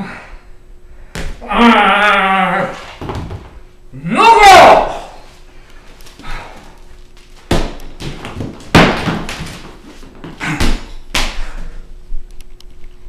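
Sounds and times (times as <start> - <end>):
objects thudding on wooden floor: 2.8 - 3.6, 7.5 - 10.9.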